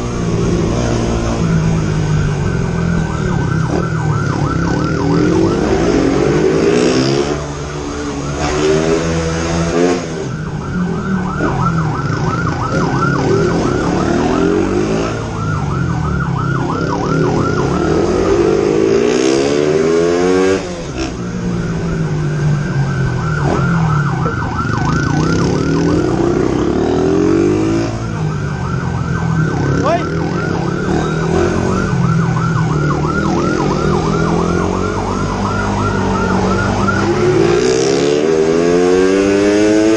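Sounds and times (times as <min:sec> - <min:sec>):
police siren fast yelp: 0:01.4 - 0:07.2, 0:07.8 - 0:19.5, 0:21.6 - 0:38.0
motorbike engine revving: 0:29.4 - 0:39.9.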